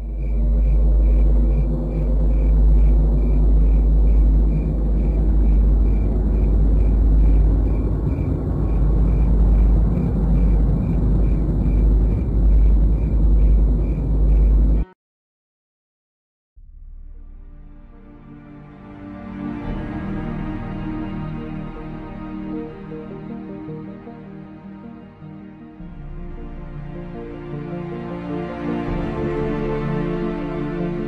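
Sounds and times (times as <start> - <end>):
deep steady rumble: 0.0 - 14.9, 16.6 - 23.0.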